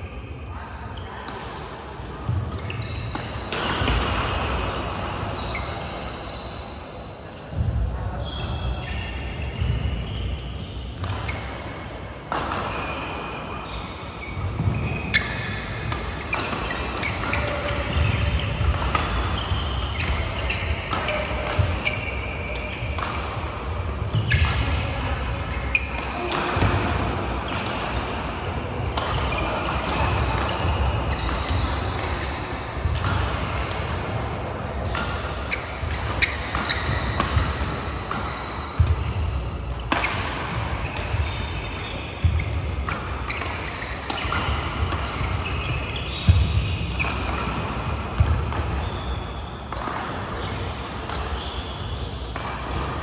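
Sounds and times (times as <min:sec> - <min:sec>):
shoe squeaks: 0:02.5 - 0:03.8, 0:05.3 - 0:07.2, 0:08.2 - 0:11.7, 0:12.6 - 0:26.7, 0:29.3 - 0:33.7, 0:35.7 - 0:47.4, 0:48.1 - 0:49.7, 0:51.3 - 0:52.3
racket striking shuttlecock: 0:11.0 - 0:11.3, 0:14.5 - 0:24.9, 0:25.8 - 0:34.2, 0:34.8 - 0:48.8, 0:49.7 - 0:53.0.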